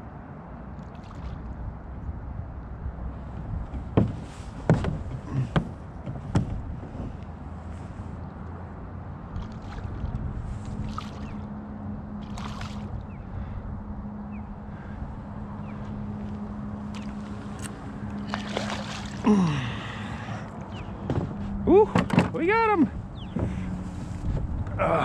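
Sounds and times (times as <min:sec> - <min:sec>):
fish splashing at the surface: 0:09.4 - 0:11.4, 0:12.2 - 0:12.9, 0:18.2 - 0:19.4.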